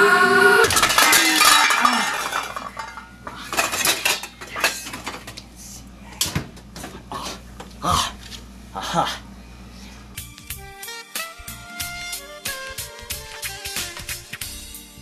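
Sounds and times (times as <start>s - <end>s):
pitched tone falling: 0.0s - 0.7s
small hard objects clinking: 0.7s - 5.0s.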